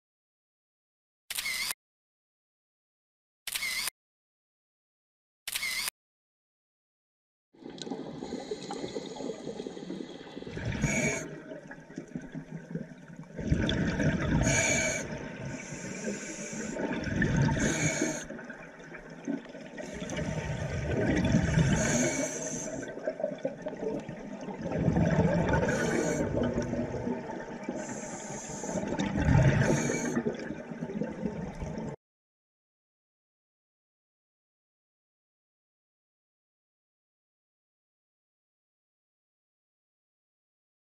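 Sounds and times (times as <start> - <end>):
underwater exhaled air bubbling: 7.6 - 32.0
water rushing: 7.6 - 32.0.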